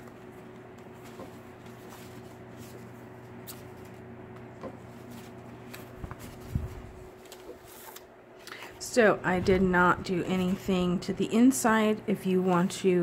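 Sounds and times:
paper pages rustling: 0:00.0 - 0:08.8.

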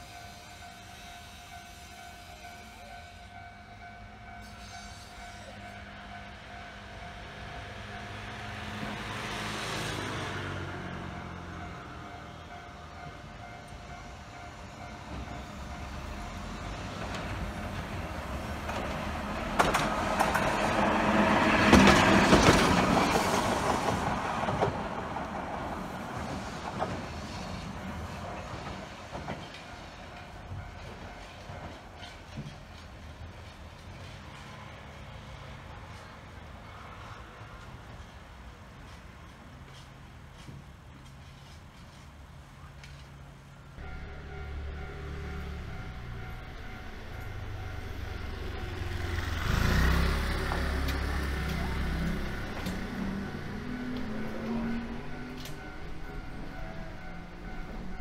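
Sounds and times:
tram passing by: 0:00.0 - 0:58.0
wheels clicking over rail joints: 0:15.0 - 0:25.5, 0:43.8 - 0:58.0.

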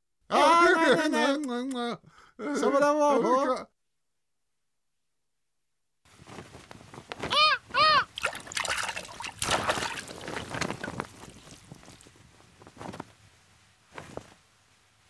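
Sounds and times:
water splashing and bubbling: 0:08.1 - 0:12.2.

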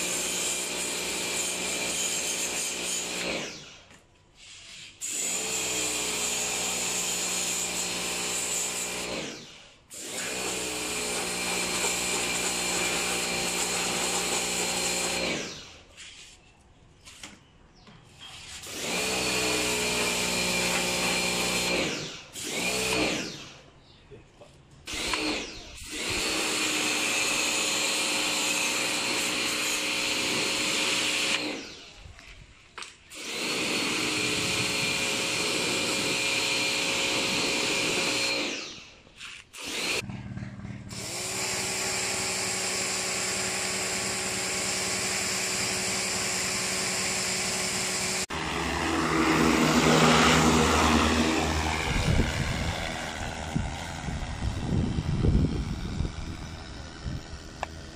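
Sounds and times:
pressure washer motor whine: 0:18.7 - 0:23.4, 0:40.9 - 0:57.9.

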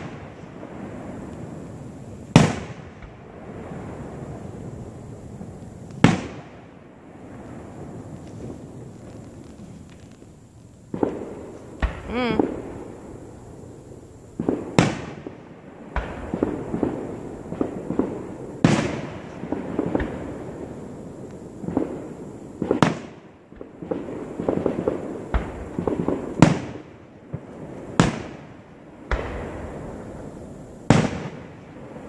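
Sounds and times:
fireworks bursting with echoing bangs: 0:00.0 - 0:32.0
fireworks crackling: 0:00.0 - 0:32.0.

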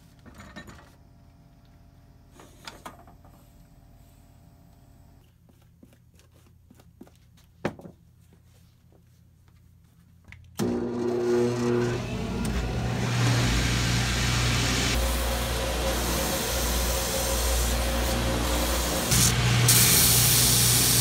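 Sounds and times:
machine motors humming and whirring: 0:10.6 - 0:21.0.

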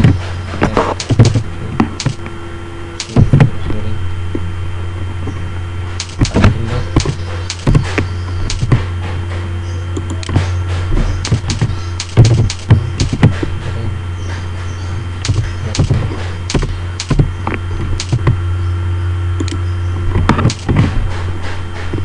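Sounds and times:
keyboard keys clicking: 0:00.0 - 0:02.3, 0:03.0 - 0:03.5, 0:06.0 - 0:08.9, 0:09.9 - 0:13.5, 0:15.2 - 0:18.4, 0:19.4 - 0:19.6, 0:20.2 - 0:21.0
low electrical hum: 0:00.0 - 0:22.0.

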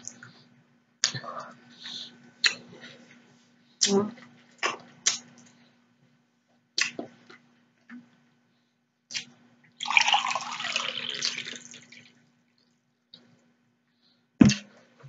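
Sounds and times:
water poured into a glass: 0:09.8 - 0:12.2.

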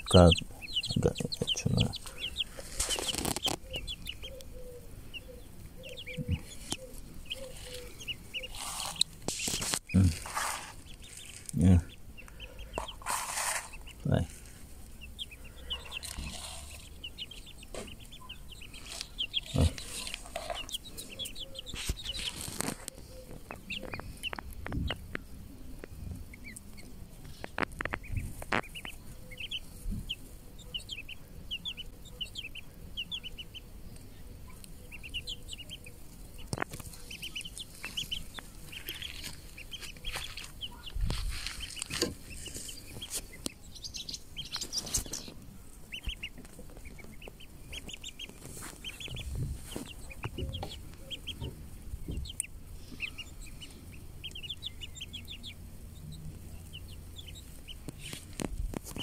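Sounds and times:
chicks and ducklings peeping: 0:00.0 - 0:59.0
rustles and knocks: 0:37.7 - 0:43.5, 0:46.0 - 0:52.3.

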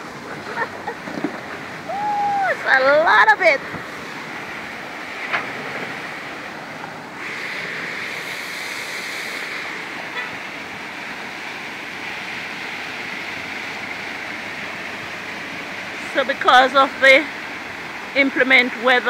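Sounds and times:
waterfall pouring onto stones: 0:01.4 - 0:03.5, 0:07.2 - 0:19.0.

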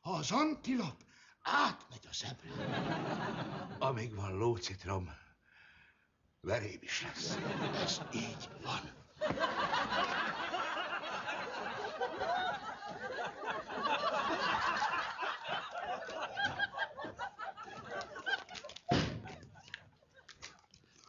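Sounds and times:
audience laughter: 0:02.5 - 0:03.8, 0:07.2 - 0:19.8
door slamming: 0:18.9 - 0:19.4.

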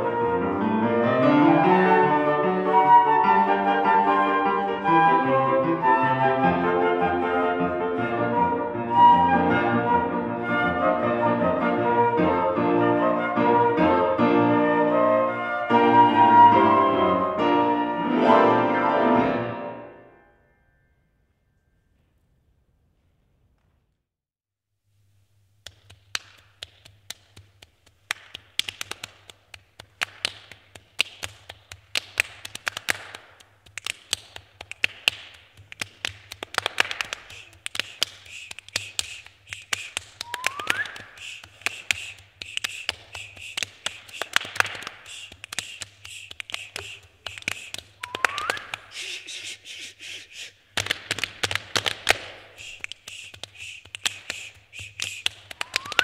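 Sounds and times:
hand claps and finger snaps: 0:25.6 - 0:56.0.

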